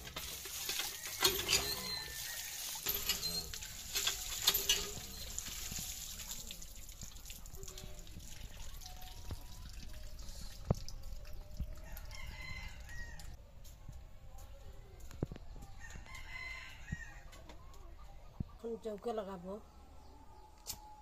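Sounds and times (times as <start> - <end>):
water splashing from pump spout: 0.0 - 11.9
rooster crowing: 11.8 - 13.3, 15.8 - 17.3.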